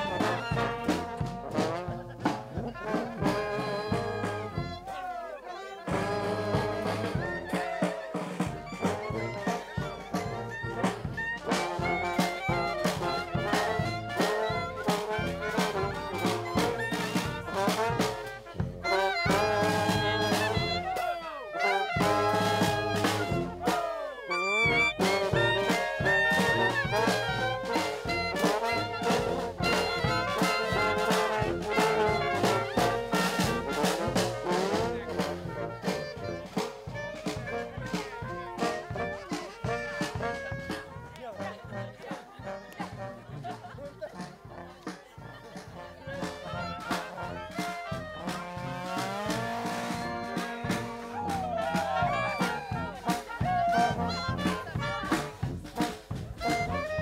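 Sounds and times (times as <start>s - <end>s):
bass drum beat: 0.0s - 4.9s, 5.9s - 21.2s, 21.9s - 57.0s
trombone: 0.0s - 5.2s, 5.8s - 57.0s
brass band playing: 0.0s - 57.0s.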